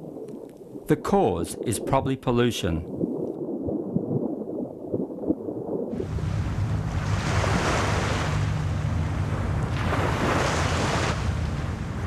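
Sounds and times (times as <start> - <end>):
low rumble: 2.8 - 12.0
sea surf: 5.9 - 12.0
wind: 5.9 - 12.0.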